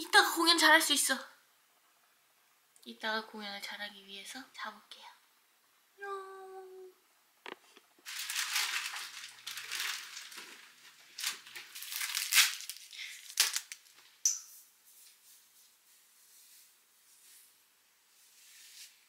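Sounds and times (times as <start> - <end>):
person humming: 6.0 - 7.0
rustling and crinkling: 7.5 - 19.0.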